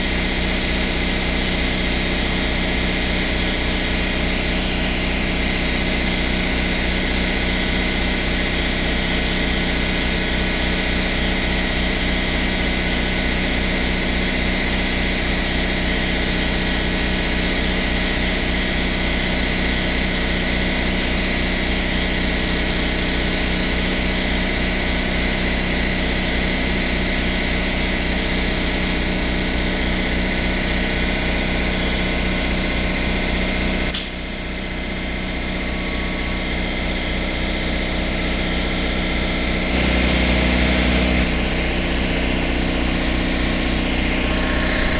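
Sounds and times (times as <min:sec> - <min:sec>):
spray gun hissing: 0:00.0 - 0:29.0
air compressor running: 0:00.0 - 0:44.9.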